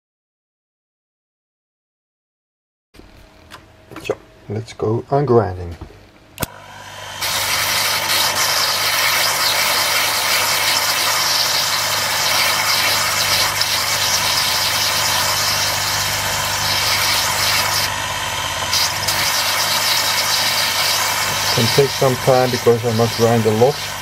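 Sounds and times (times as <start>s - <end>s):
high grinding hiss: 6.4s - 24.0s
lathe motor hum: 6.4s - 24.0s.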